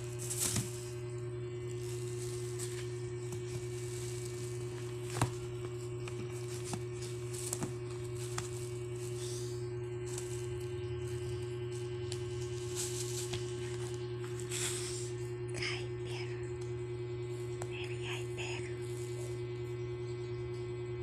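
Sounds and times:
kitten pawing small objects: 0.0s - 1.0s, 1.6s - 14.9s
steady hum: 0.0s - 21.0s.

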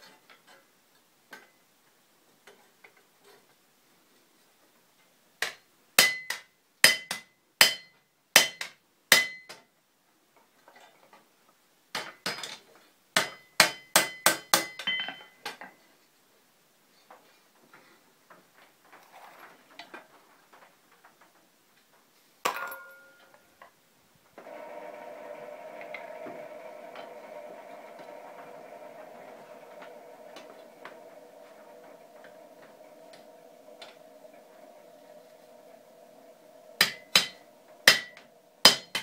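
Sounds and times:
hammer striking iron on anvil: 6.0s - 9.6s, 13.2s - 15.2s, 36.8s - 39.0s.

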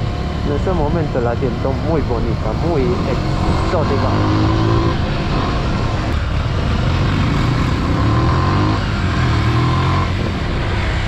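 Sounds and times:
motorcycle engine running: 0.0s - 11.0s
wind noise: 0.0s - 11.0s.

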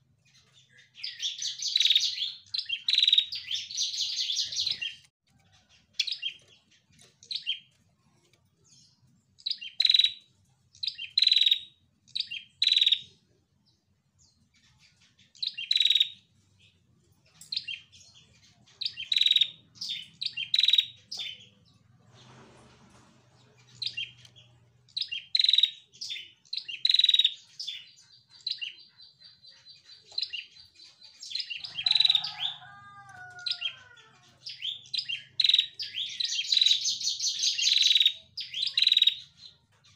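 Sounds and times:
bird chirping: 0.0s - 39.9s.

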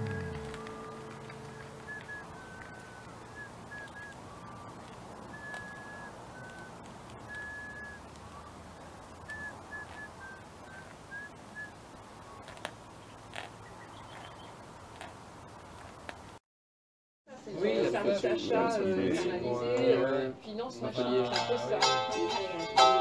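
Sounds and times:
bird singing whistled notes: 0.0s - 14.6s
faint background hiss: 0.0s - 16.4s.

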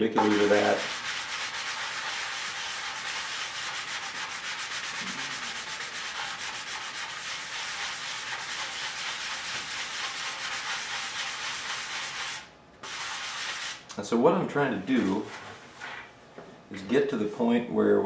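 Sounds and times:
hand sanding with foam block: 0.0s - 13.8s.

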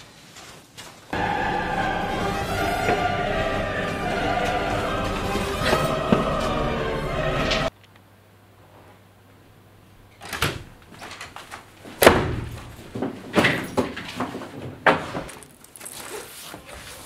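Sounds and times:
door banging shut: 12.0s - 14.0s.

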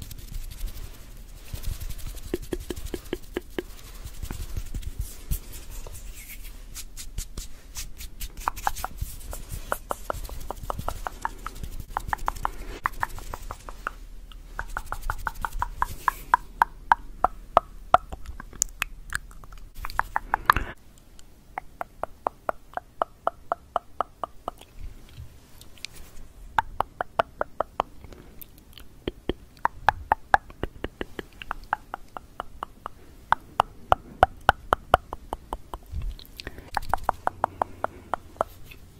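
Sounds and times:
tongue clicking: 9.7s - 26.0s, 26.6s - 38.8s.

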